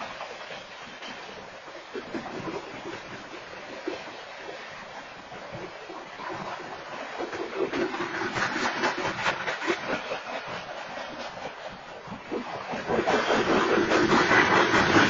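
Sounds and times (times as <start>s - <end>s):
train wheels rumbling on rails: 0.0s - 15.0s
rapid wheel clacks: 6.6s - 15.0s.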